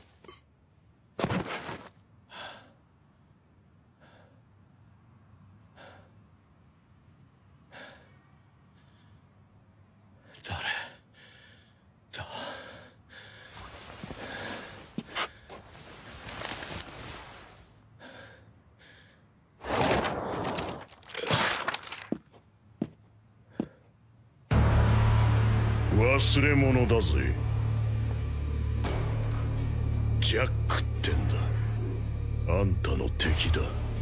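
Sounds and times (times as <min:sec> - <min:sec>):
man gasping and breathing heavily: 0:02.2 - 0:02.9, 0:10.2 - 0:15.7, 0:17.9 - 0:19.4.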